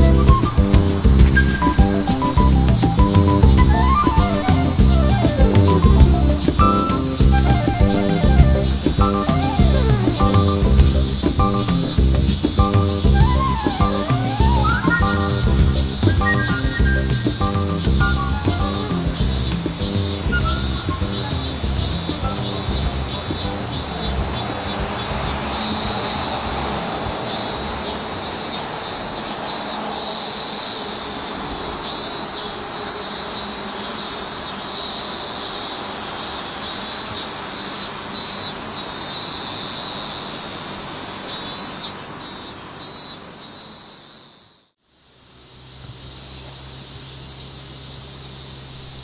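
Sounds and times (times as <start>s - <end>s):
insects chirping: 0.0s - 49.0s.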